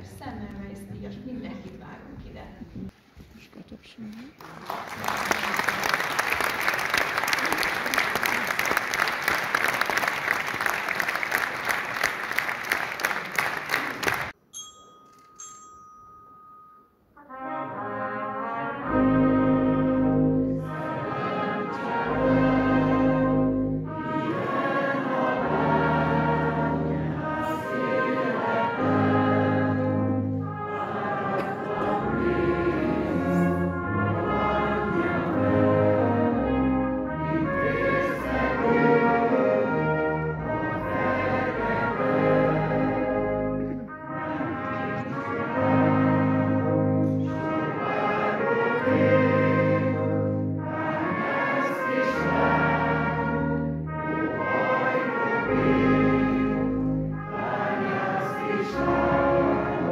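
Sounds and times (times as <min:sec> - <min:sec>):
audience applauding: 0:04.4 - 0:14.4
brass band playing slow chords: 0:17.2 - 0:59.9.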